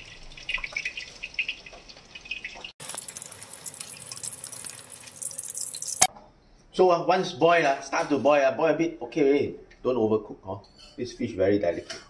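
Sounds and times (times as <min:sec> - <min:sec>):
soup simmering and bubbling: 0:00.0 - 0:06.1.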